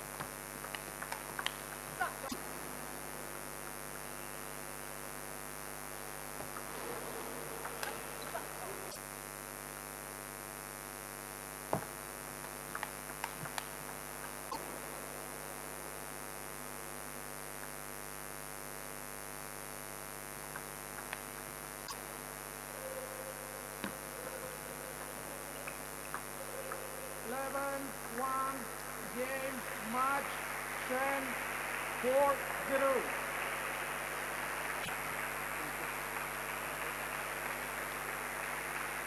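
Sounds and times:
electrical mains hum: 0.0 - 39.0.

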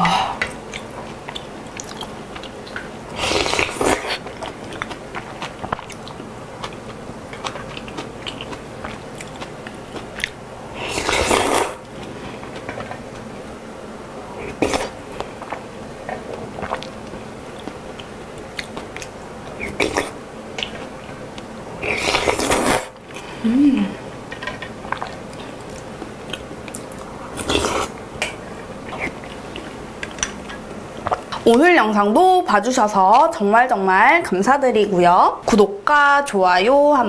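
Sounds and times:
chewing: 0.4 - 13.2, 14.4 - 20.9, 24.4 - 31.5
noodles slurped: 10.8 - 11.8, 21.8 - 22.9.

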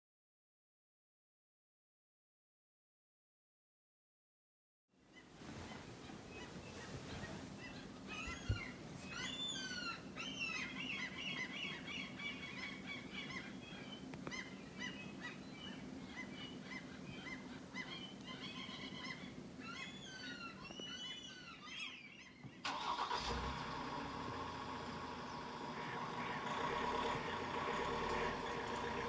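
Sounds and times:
flock of birds calling: 5.2 - 29.0
steady engine-like noise: 23.2 - 29.0.

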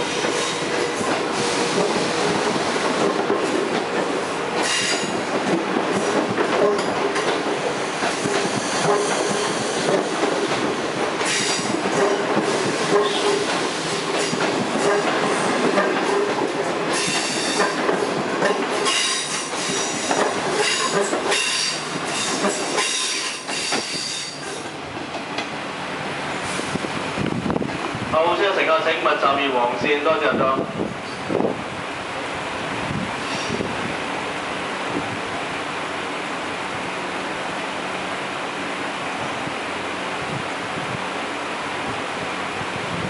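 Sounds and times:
train wheels clattering over rails: 0.0 - 25.6.

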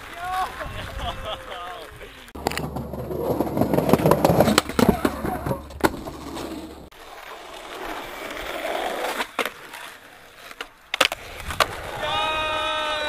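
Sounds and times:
skateboard wheels rolling: 2.2 - 13.0
sharp skateboard clacks: 2.4 - 6.8, 10.5 - 11.9.

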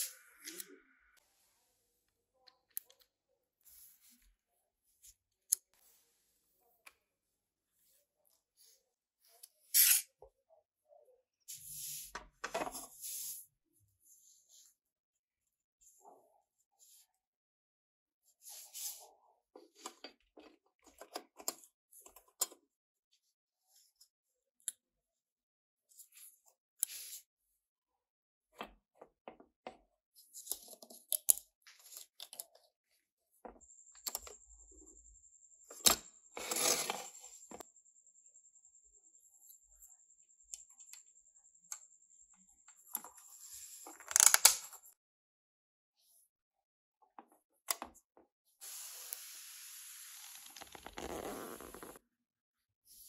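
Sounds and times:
parts scraping together: 36.4 - 37.6.

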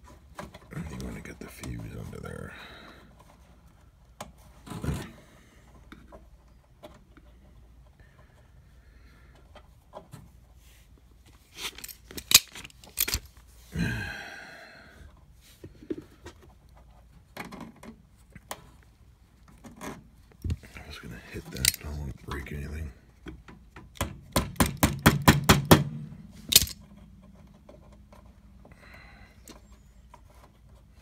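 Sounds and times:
sharp metal clicks: 21.5 - 21.8, 26.5 - 26.8
clicks and taps of wiring work: 23.2 - 25.6.

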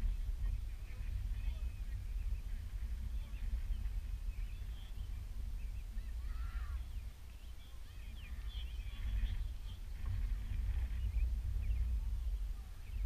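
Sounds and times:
wind buffeting microphone: 0.0 - 13.0
faint distant high calls: 4.4 - 9.8.

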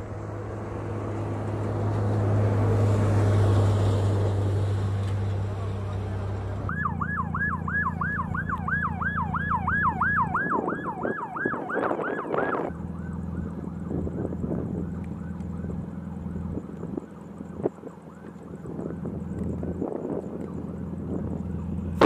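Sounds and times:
low engine drone: 0.0 - 22.0
siren yelping: 6.7 - 19.8.

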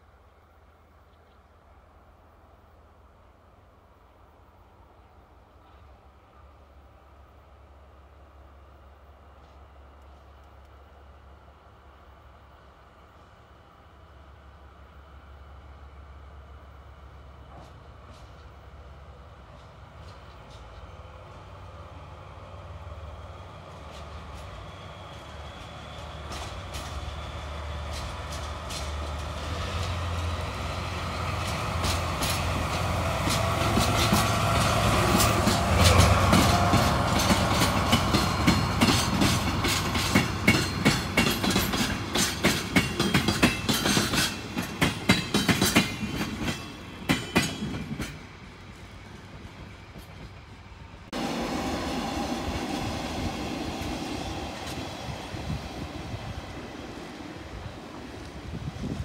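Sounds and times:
diesel locomotive engine hum: 0.0 - 59.0
train wheels clicking over rail joints: 17.4 - 21.5, 23.6 - 51.2.

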